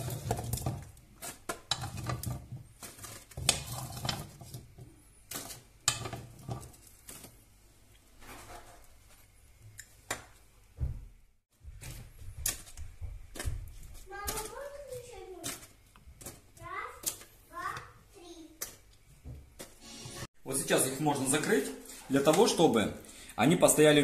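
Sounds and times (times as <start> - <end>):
metal spoon scraping frying pan: 0.0 - 4.7.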